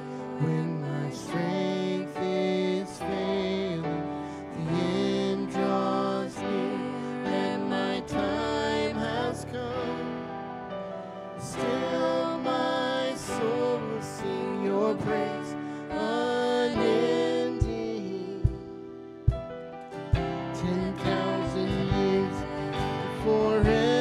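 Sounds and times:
slow worship song from band: 0.0s - 24.0s
low drum thumps: 18.4s - 24.0s.

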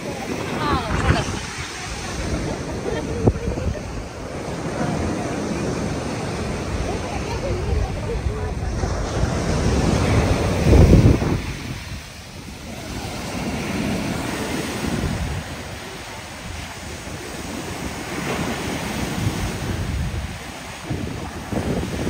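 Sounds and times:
waves breaking on a beach: 0.0s - 22.0s
wind buffeting microphone: 0.0s - 22.0s.

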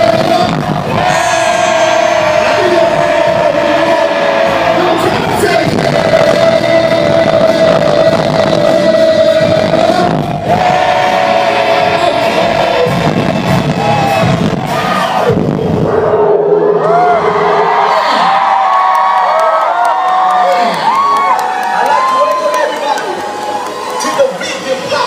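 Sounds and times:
person singing long notes: 0.0s - 14.2s
live pop band: 0.0s - 16.0s.

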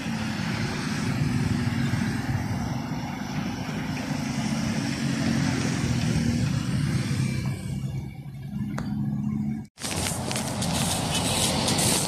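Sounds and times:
sprinkler spray hiss: 10.0s - 12.0s.

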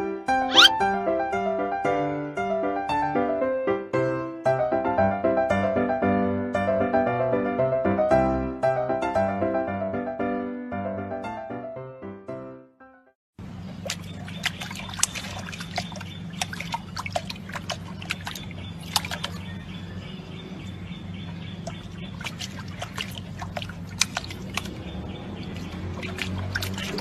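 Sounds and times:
water splashing and dripping: 13.6s - 19.9s, 21.2s - 27.0s.

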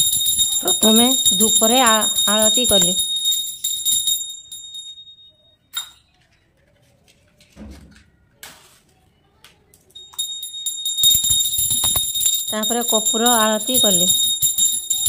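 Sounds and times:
handheld bell ringing: 0.0s - 6.0s, 10.0s - 15.0s.

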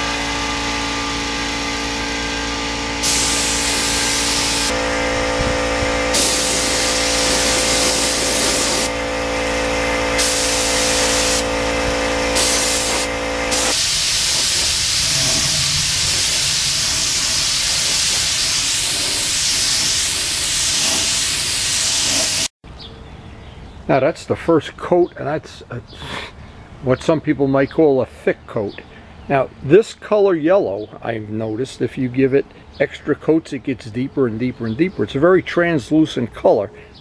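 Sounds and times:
motor hum: 0.0s - 22.4s
spray gun hissing: 1.2s - 22.5s.

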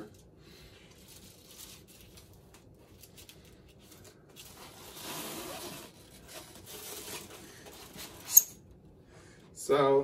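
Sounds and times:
object scraping in foam packaging: 4.4s - 8.3s.

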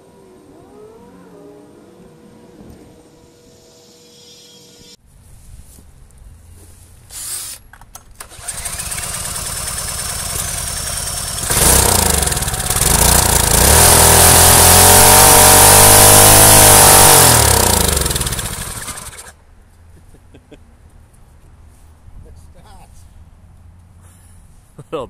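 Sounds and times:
cordless drill spinning engine: 8.2s - 19.3s
small engine running: 8.2s - 19.4s.

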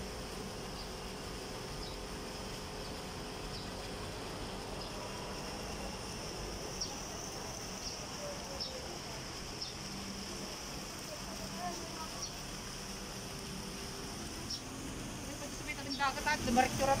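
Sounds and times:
short insect chirps: 2.8s - 10.4s
high-pitched insect buzz: 2.8s - 17.0s.

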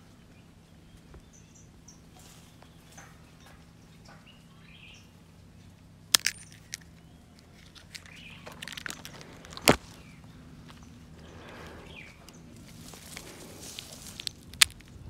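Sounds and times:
leaves and twigs rustling: 0.0s - 15.0s
pods snapping off a tree: 6.1s - 10.2s, 11.2s - 15.0s.

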